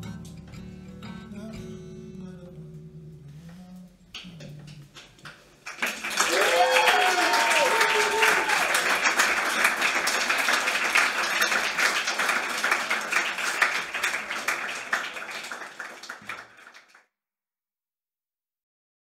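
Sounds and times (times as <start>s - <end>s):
audience clapping: 5.0s - 17.1s.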